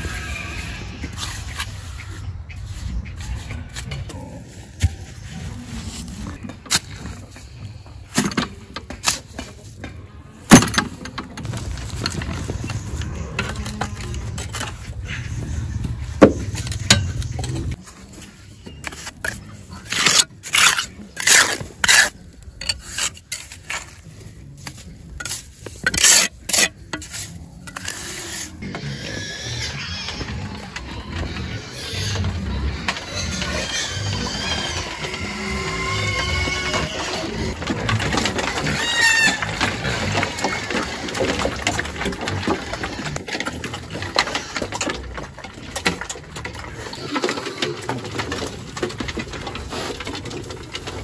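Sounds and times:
trowel scraping mortar: 12.4 - 29.3.

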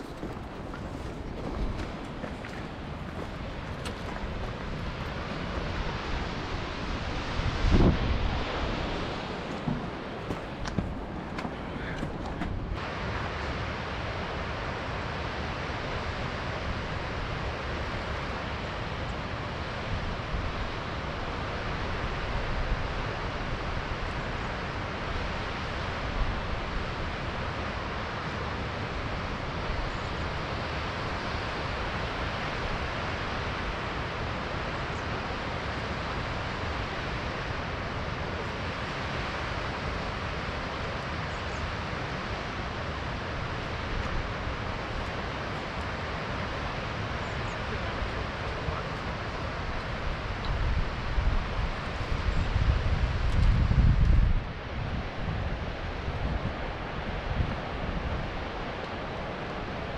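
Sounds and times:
waterfall rushing: 0.0 - 19.8.

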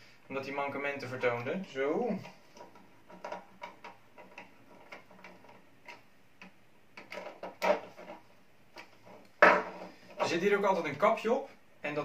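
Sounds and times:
plastic clacks: 2.2 - 10.3.

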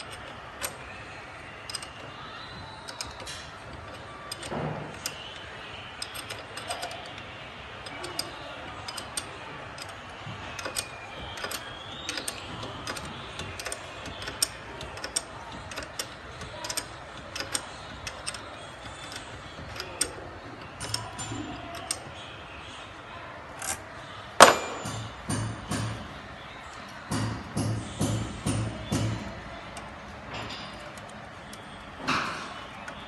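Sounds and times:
metallic clicks and clinks: 1.6 - 2.1, 6.0 - 7.2, 7.8 - 22.1.

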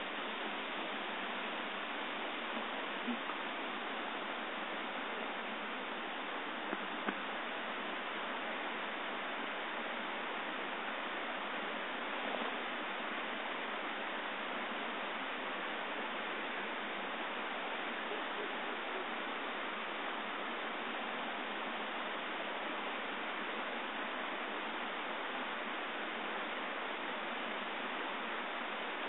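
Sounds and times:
creek rushing: 0.0 - 29.0
faint ticks: 6.7 - 7.3.

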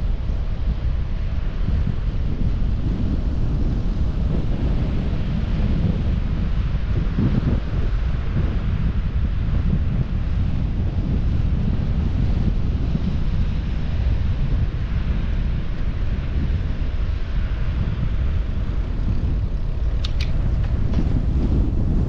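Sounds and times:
wind buffeting microphone: 0.0 - 22.0
short sharp clicks: 20.0 - 20.4.

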